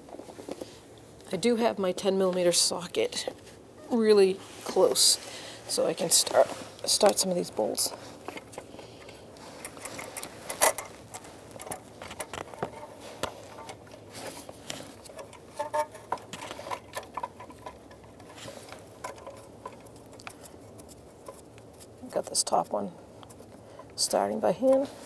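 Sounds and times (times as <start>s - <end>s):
metal parts clicking and knocking: 8.3s - 13.8s, 15.0s - 21.4s.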